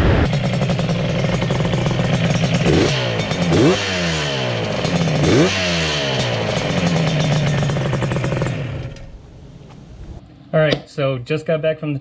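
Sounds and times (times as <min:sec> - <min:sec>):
motorcycle engine revving: 0:00.0 - 0:09.2.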